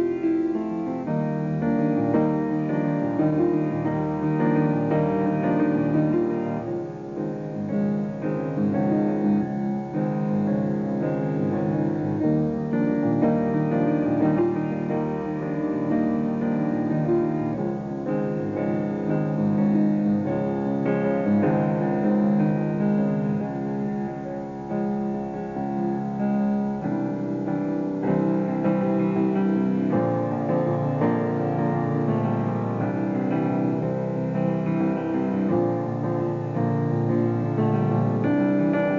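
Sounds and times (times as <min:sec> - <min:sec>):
piano music with held notes: 0:00.0 - 0:38.9.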